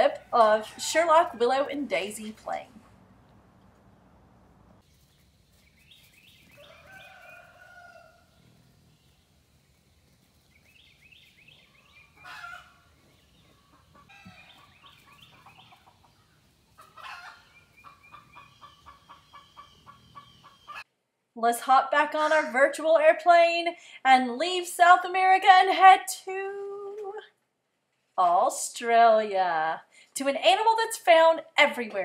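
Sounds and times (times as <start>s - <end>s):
animal chirps: 16.8s - 20.8s.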